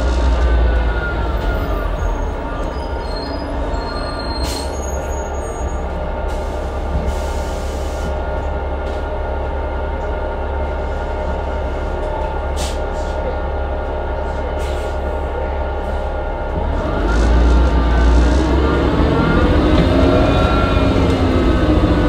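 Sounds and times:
bus engine rumble: 0.0s - 22.0s.

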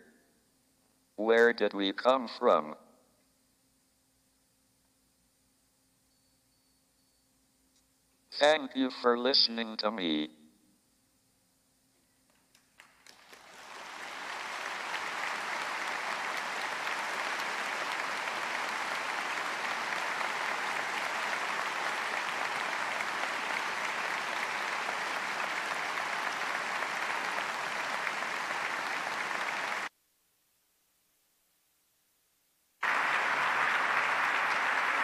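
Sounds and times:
audience applauding: 12.8s - 29.9s, 32.8s - 35.0s.

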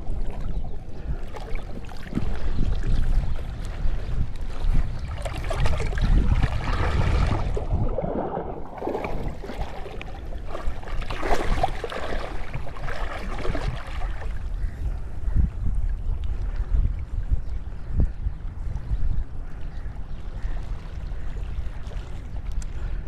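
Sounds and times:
sea water sloshing and splashing: 0.0s - 14.8s
wind buffeting microphone: 0.0s - 23.0s.

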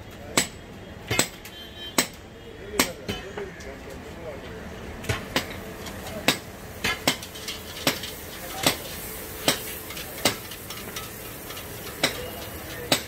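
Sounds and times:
hot oil sizzling: 5.0s - 13.0s
metal spoon clinking on iron pan: 6.3s - 13.0s.

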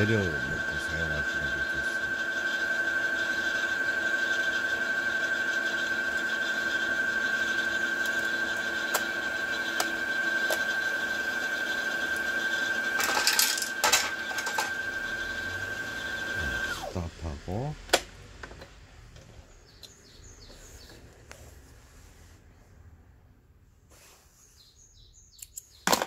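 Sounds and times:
sewing machine motor whining: 0.0s - 17.7s.

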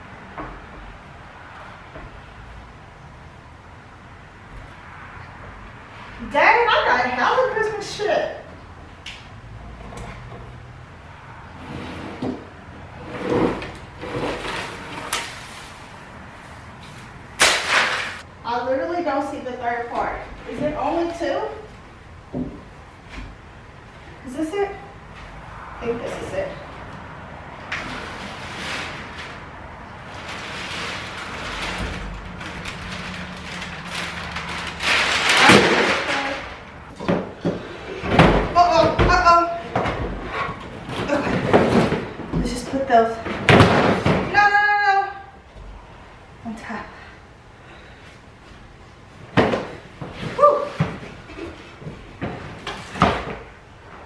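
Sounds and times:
scraping and rustling of things: 11.4s - 18.3s, 22.9s - 44.3s, 47.7s - 54.0s.

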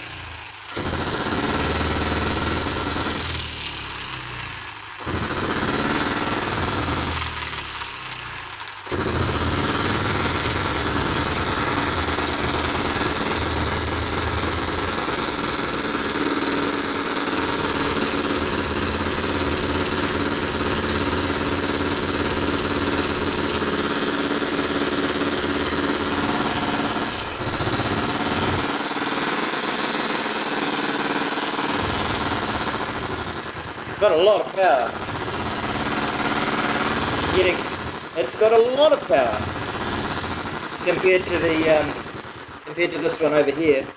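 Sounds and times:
model engine firing chatter: 0.0s - 43.9s.

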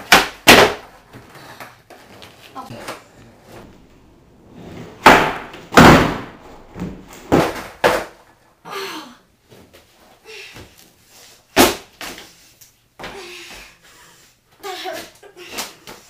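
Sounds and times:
skateboard clattering on plywood: 5.0s - 8.3s.

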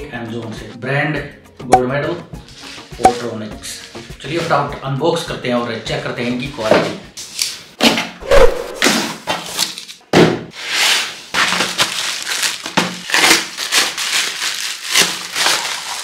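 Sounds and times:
plastic bag tearing and crinkling: 10.8s - 16.0s.

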